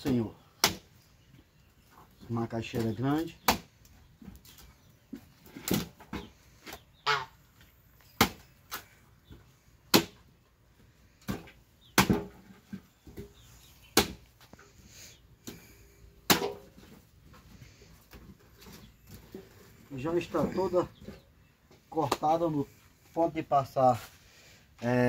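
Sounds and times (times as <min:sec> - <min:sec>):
machete chopping roots: 0:00.0 - 0:00.9, 0:03.4 - 0:03.8, 0:05.5 - 0:06.0, 0:08.2 - 0:08.9, 0:09.9 - 0:10.2, 0:11.2 - 0:12.4, 0:13.9 - 0:14.2, 0:16.2 - 0:16.7.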